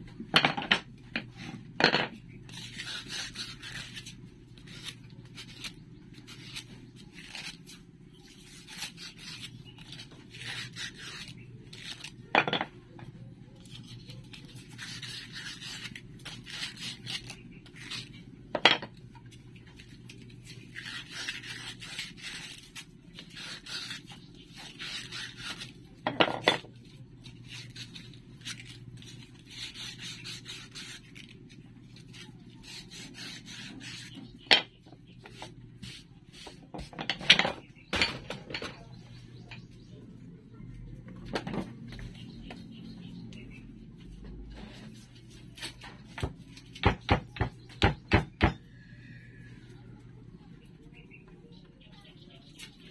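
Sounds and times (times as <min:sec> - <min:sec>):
sandpaper rubbing wood: 0:14.6 - 0:18.1, 0:29.1 - 0:31.3.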